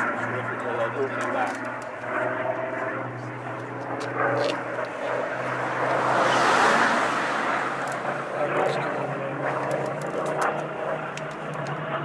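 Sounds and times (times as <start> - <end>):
propeller plane engine droning: 0.0 - 12.0
rushing air: 5.0 - 8.6.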